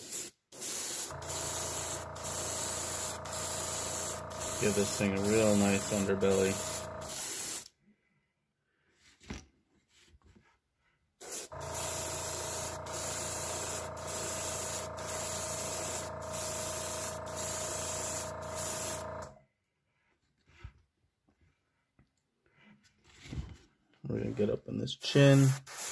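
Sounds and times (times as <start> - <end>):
airbrush hissing: 0.0 - 7.7, 11.2 - 19.3, 25.3 - 25.9
airbrush hum: 0.0 - 7.7, 11.2 - 19.3.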